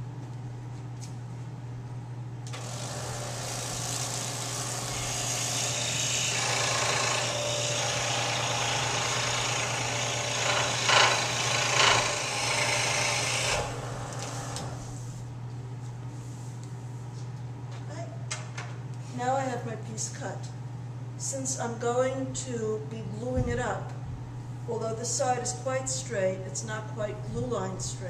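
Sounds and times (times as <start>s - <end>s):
steady low hum: 0.0s - 28.0s
scroll saw cutting wood: 2.6s - 14.8s.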